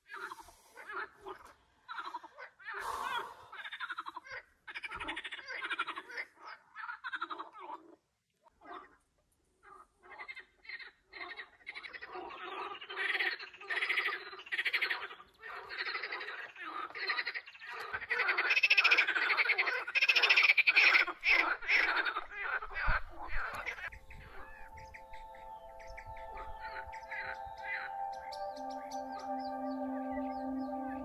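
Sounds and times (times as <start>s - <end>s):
frogs croaking: 9.6s - 31.0s
steady music tones: 23.8s - 31.0s.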